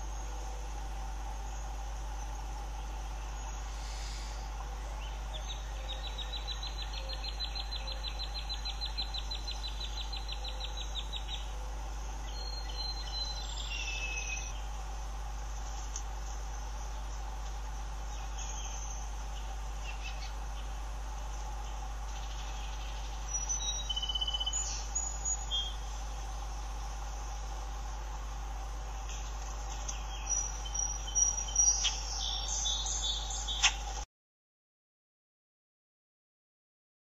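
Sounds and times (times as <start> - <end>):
steady low hum: 0.0 - 34.1.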